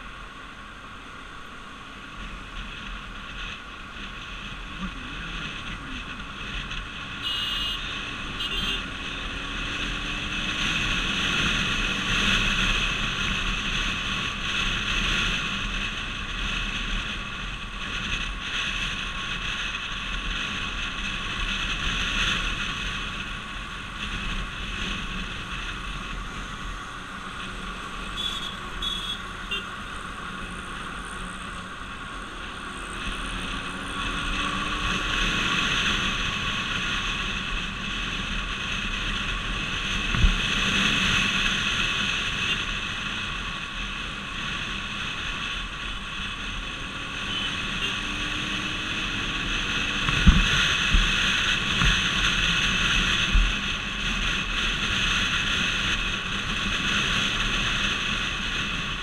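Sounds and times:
motorcycle engine running: 0.0 - 59.0
wind over microphone: 30.0 - 59.0.

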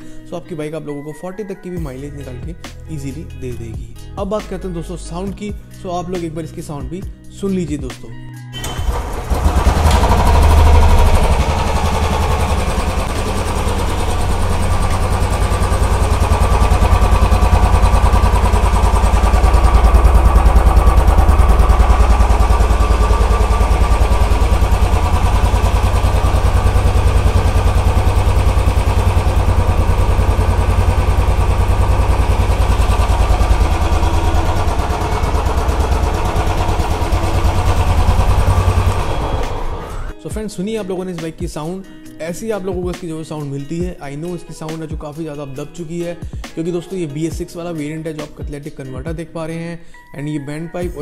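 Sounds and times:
motorcycle engine idling: 8.6 - 40.1.

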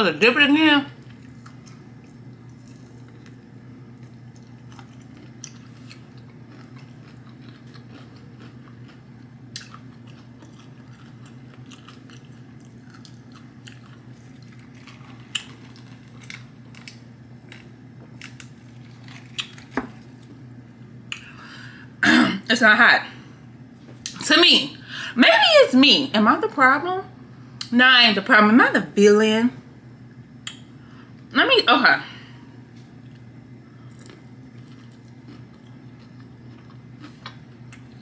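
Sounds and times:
steady low hum: 0.0 - 38.0
chewing fried chicken: 0.9 - 21.3, 32.8 - 38.0.

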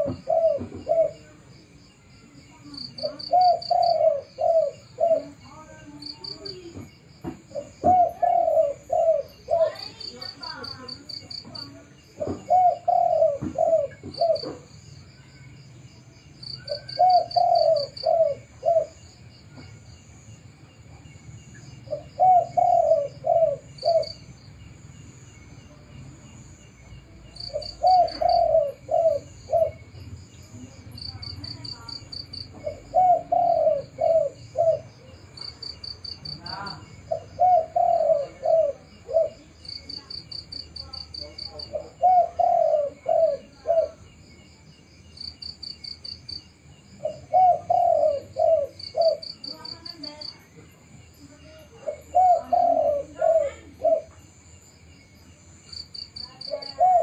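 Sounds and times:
dove cooing: 0.0 - 1.5, 2.7 - 14.7, 16.5 - 19.6, 21.8 - 24.4, 27.3 - 30.0, 30.7 - 44.2, 47.0 - 50.5, 51.4 - 54.2, 56.2 - 57.0.

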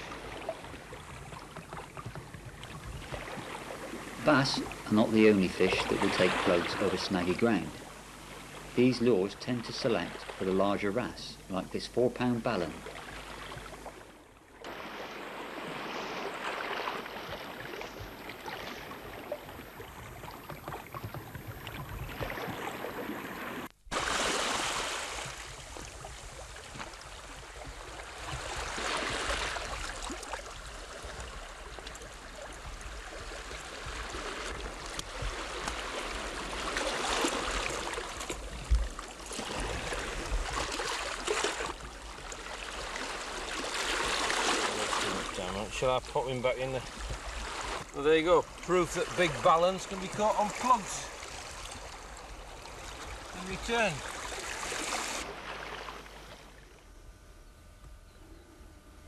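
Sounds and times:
sea washing along shore: 0.0 - 57.0.

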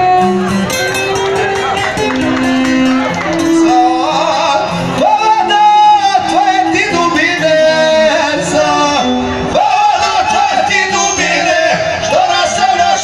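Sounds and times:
long-necked lute: 0.0 - 9.6
violin: 0.0 - 9.9
man singing through microphone: 2.8 - 13.0.

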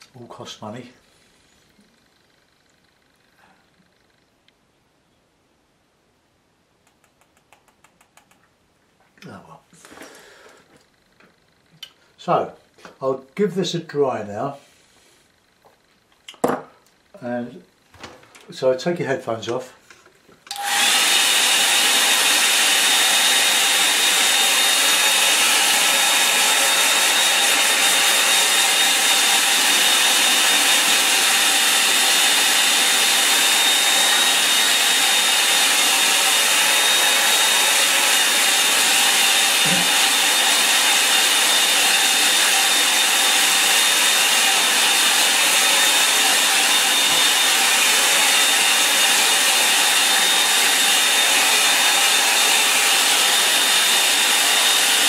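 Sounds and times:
hair dryer blowing: 20.5 - 55.0.

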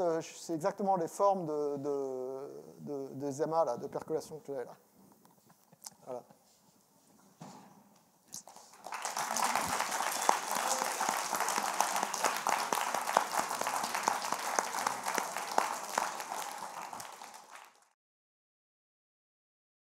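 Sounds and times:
audience applauding: 8.4 - 18.0.

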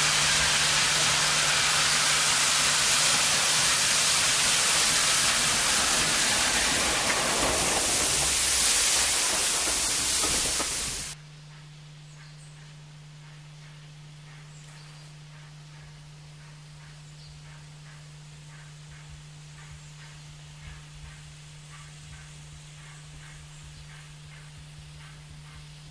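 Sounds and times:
loud steam hiss: 0.0 - 11.2.

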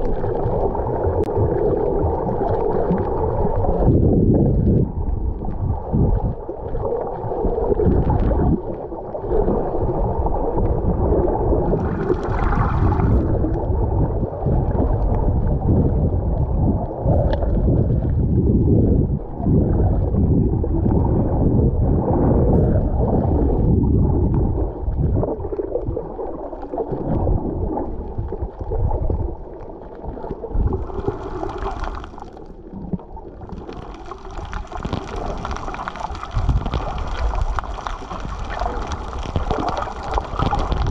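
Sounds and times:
underwater water rumble: 0.0 - 40.9
hissing splashes: 11.8 - 13.2, 30.8 - 32.4, 33.5 - 40.9.

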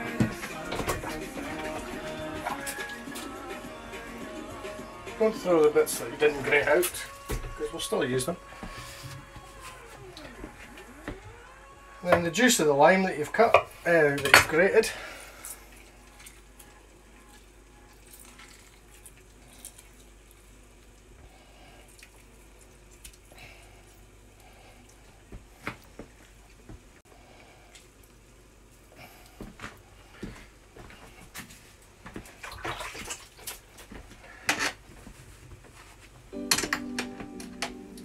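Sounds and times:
juice trickling and dripping: 15.4 - 25.3.

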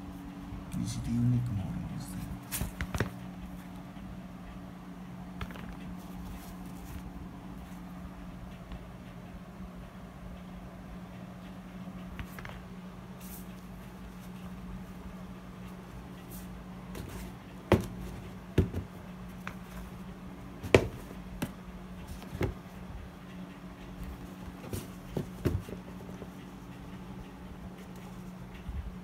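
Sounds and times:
steady low hum: 0.0 - 29.0
shoes knocking and tapping: 17.0 - 19.8, 20.6 - 21.6, 22.2 - 22.6, 24.5 - 26.2.

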